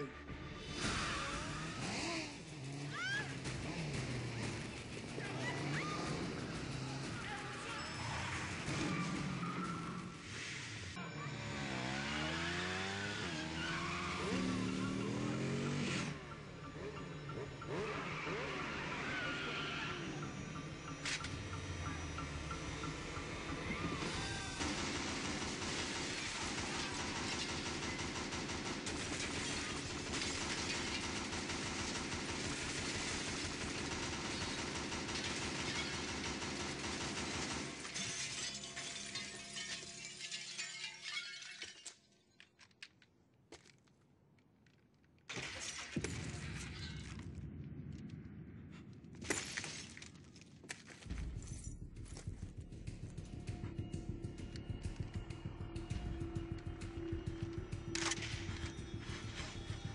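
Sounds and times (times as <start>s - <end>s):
motorcycle engine revving: 0.8s - 7.3s, 11.3s - 24.2s, 51.8s - 59.9s
automatic gunfire: 24.4s - 37.9s
glass shattering: 37.8s - 42.7s.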